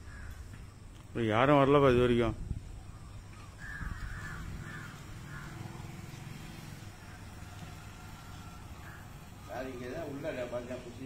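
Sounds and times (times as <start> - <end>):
crow cawing: 0.0 - 0.5, 2.9 - 10.2.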